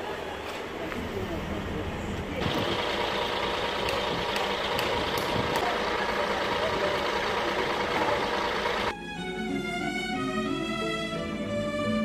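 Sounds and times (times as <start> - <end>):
truck engine running: 1.0 - 8.9
violin music: 7.8 - 12.0.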